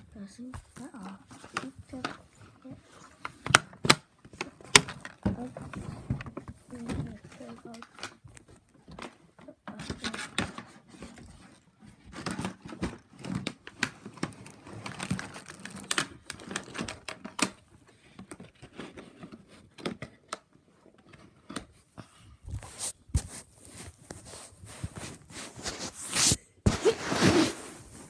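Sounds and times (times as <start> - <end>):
plastic bag crinkling: 14.3 - 17.1.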